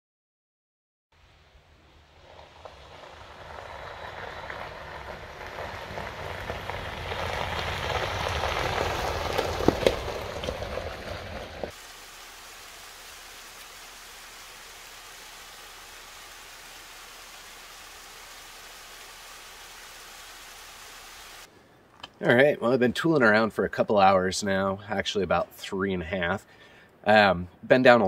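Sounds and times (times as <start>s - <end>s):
car engine passing: 1.3s - 11.7s
tyres crunching on gravel: 2.2s - 11.8s
waterfall rushing: 11.4s - 21.5s.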